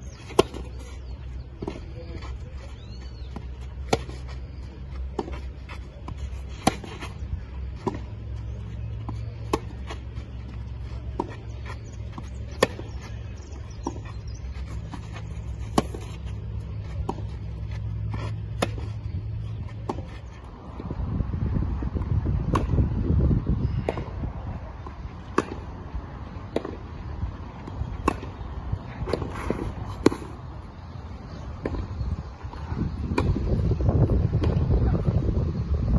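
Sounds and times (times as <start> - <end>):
steady low rumble: 0.0 - 35.9
racket hitting tennis ball: 0.2 - 0.9, 3.6 - 20.1, 22.4 - 22.8, 24.8 - 25.7, 27.6 - 30.4.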